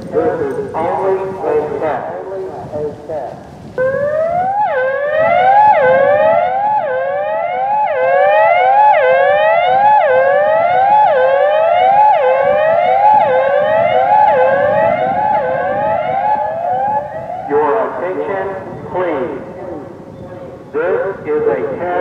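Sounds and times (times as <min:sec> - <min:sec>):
rising electronic siren: 0:03.8 - 0:17.6.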